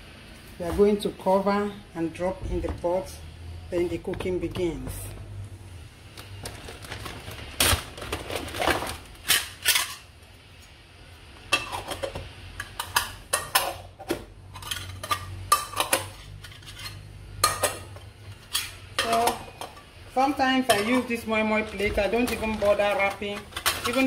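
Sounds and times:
metal lids clinking on cups: 0:11.5 - 0:19.9, 0:20.5 - 0:24.0.

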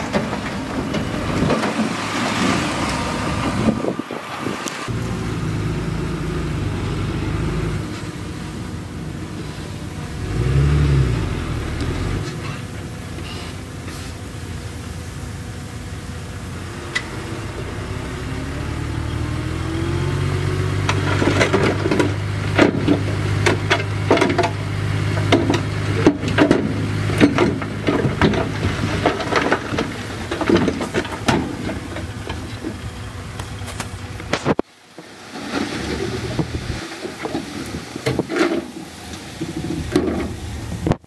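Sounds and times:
steel tracks clanking and rattling: 0:00.0 - 0:03.6
bulldozer diesel engine working: 0:00.0 - 0:34.5, 0:35.4 - 0:41.0.

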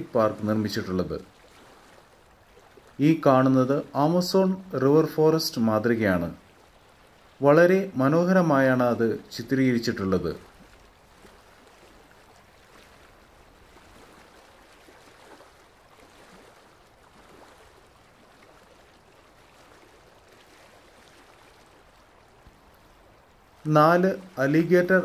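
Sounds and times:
faint running water: 0:00.0 - 0:25.0.

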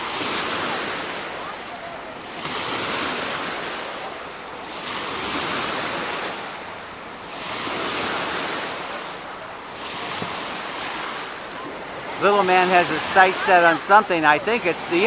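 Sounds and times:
water washing and splashing: 0:07.3 - 0:15.0.

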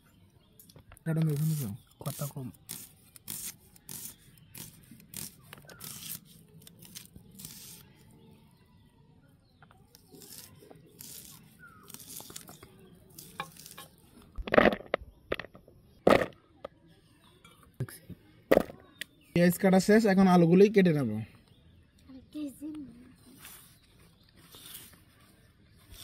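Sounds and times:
onions being sliced on blade: 0:01.4 - 0:07.8, 0:10.0 - 0:14.0.

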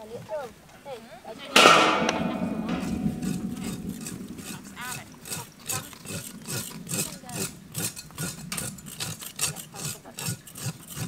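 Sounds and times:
rhythmic scraping of skin: 0:05.7 - 0:11.0.

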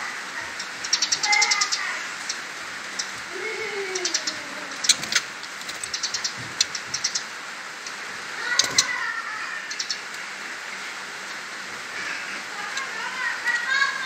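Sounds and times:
bird wavering chirp: 0:00.0 - 0:10.1
birds clicking ticks: 0:00.4 - 0:09.1, 0:09.7 - 0:14.0.

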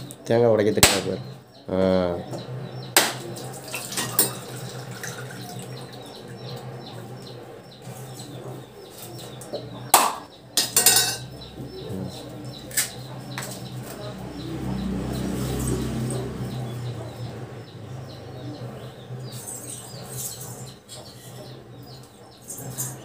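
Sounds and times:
knife striking coconut shell: 0:00.8 - 0:01.1, 0:03.0 - 0:03.2.

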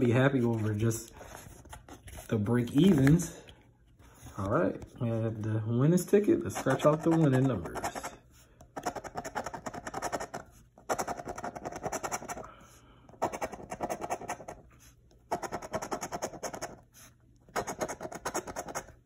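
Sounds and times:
coin scratching lottery ticket: 0:06.5 - 0:08.2, 0:08.8 - 0:12.4, 0:13.2 - 0:14.6, 0:15.3 - 0:16.8, 0:17.5 - 0:19.0.

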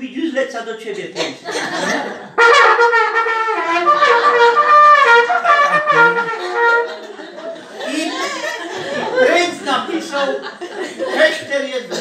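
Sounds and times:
hunting horn call: 0:02.4 - 0:06.9.

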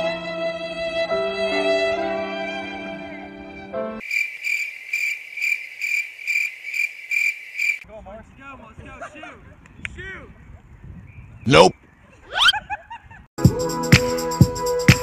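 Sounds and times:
violin music: 0:00.0 - 0:04.0
cricket chirping: 0:04.0 - 0:07.9.

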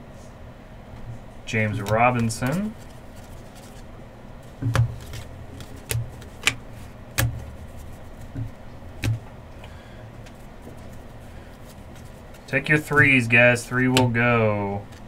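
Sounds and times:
trading cards being handled: 0:01.5 - 0:14.2
sharp taps and knocks: 0:04.6 - 0:09.3.

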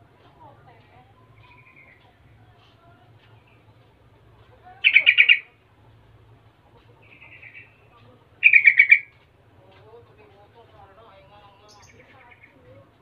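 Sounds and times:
bird singing bubbly phrases: 0:04.8 - 0:05.5, 0:08.4 - 0:09.1.

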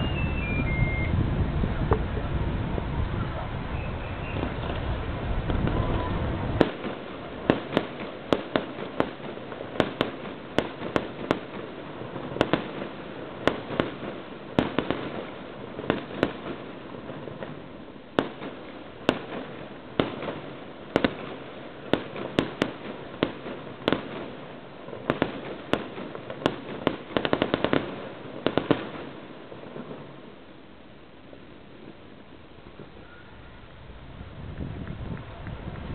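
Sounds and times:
fireworks bangs and pops: 0:00.0 - 0:30.6
fireworks crackles: 0:00.0 - 0:35.9.

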